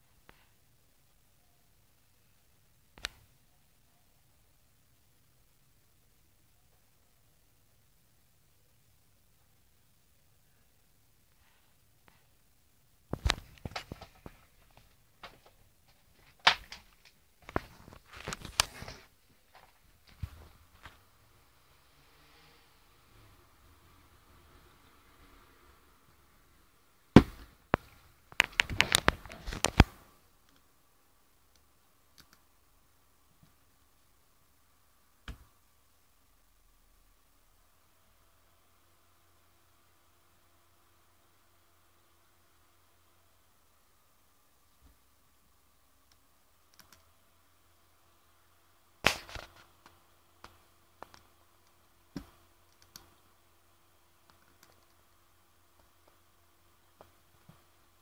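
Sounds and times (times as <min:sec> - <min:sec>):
faint steady hum: 0:00.0 - 0:58.0
faint steady whine: 0:00.0 - 0:58.0
sharp clicks and taps: 0:03.0 - 0:03.3, 0:49.0 - 0:53.1.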